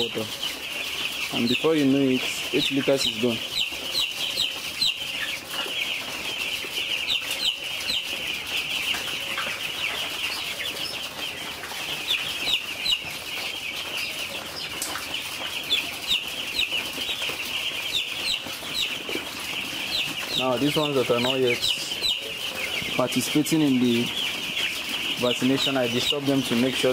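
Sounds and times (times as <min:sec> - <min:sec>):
chicks peeping: 0:00.0 - 0:26.9.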